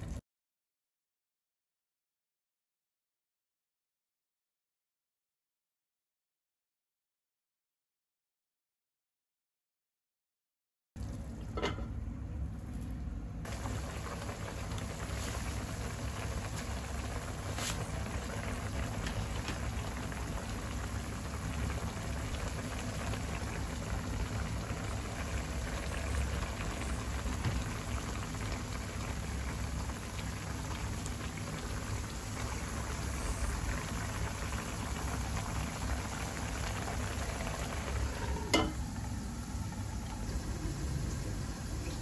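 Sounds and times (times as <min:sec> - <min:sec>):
sauce bubbling in a frying pan: 0:13.4 - 0:42.0.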